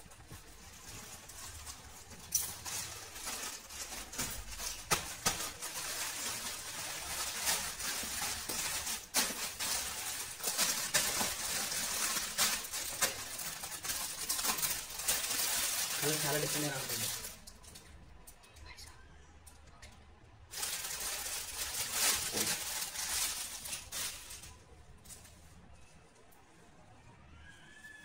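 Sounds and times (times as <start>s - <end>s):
plastic mailer bag crinkling: 0.0s - 17.8s, 20.5s - 25.3s
plastic wrap rustling: 0.0s - 18.0s, 20.4s - 26.4s
scissors cutting plastic: 1.5s - 17.9s.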